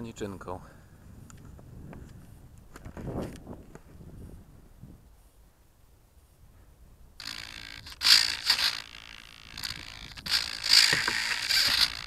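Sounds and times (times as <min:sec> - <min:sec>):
scraping and rubbing on microphone: 0:01.4 - 0:04.5.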